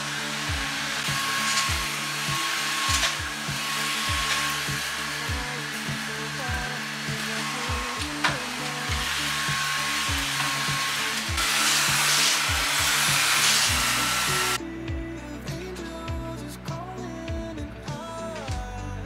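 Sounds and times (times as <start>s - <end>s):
vacuum cleaner running: 0.0s - 14.6s
music with deep bass beat: 0.0s - 19.0s.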